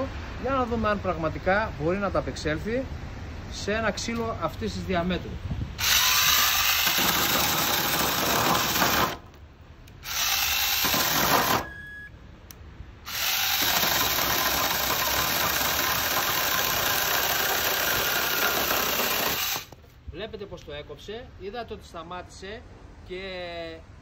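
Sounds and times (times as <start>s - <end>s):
chainsaw cutting through log: 5.8s - 9.2s, 10.0s - 11.7s, 13.1s - 19.8s.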